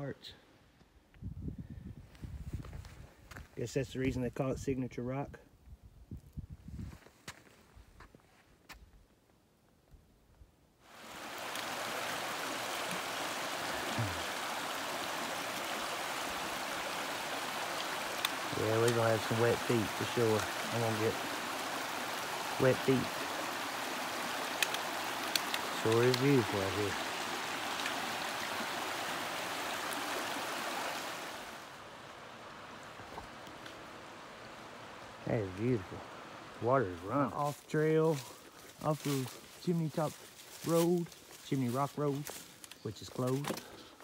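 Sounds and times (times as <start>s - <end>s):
water rushing over stones: 10.9s - 38.0s.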